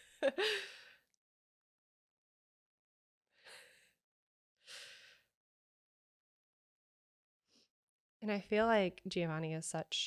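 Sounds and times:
person breathing softly: 0:04.7 - 0:05.3.

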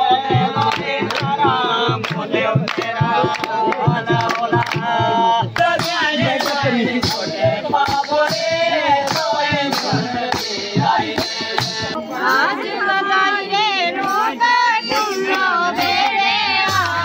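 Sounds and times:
group singing folk song: 0:00.0 - 0:17.0
hand clapping: 0:00.6 - 0:08.4, 0:09.0 - 0:10.6, 0:15.3 - 0:17.0.

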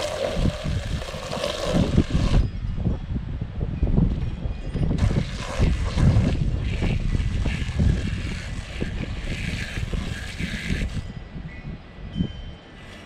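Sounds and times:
hose spraying water: 0:00.0 - 0:02.4, 0:05.0 - 0:11.0
wind rumbling on microphone: 0:00.0 - 0:13.0.

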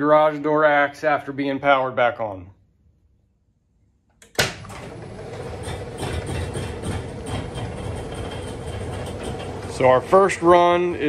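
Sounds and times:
garage door opener humming: 0:04.2 - 0:11.0.

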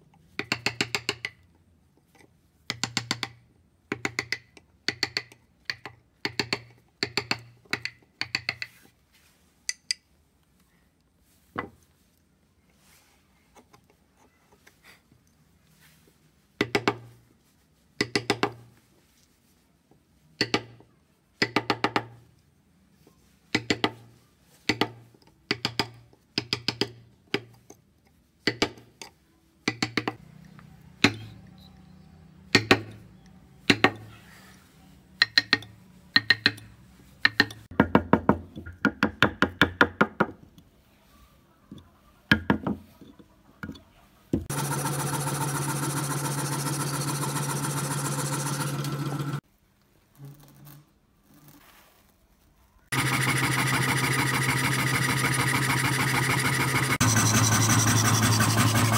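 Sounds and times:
scroll saw running: 0:44.5 - 0:49.4, 0:52.9 - 0:58.9.

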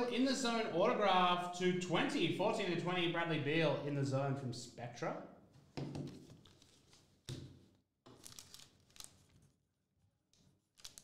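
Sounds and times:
paper rustling: 0:06.0 - 0:07.5, 0:08.1 - 0:09.6, 0:10.4 - 0:11.0.

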